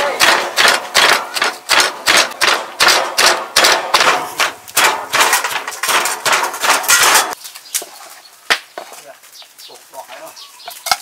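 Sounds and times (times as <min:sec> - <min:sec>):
wooden pestle pounding in mortar: 0:00.0 - 0:06.8.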